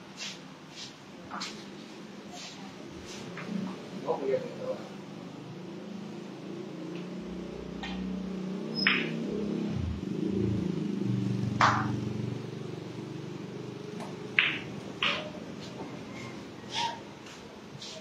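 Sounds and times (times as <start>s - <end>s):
low engine hum: 5.6s - 16.5s
billiard balls clacking: 11.6s - 12.0s, 14.0s - 15.9s
cue striking cue ball: 11.6s - 12.0s, 14.4s - 15.4s.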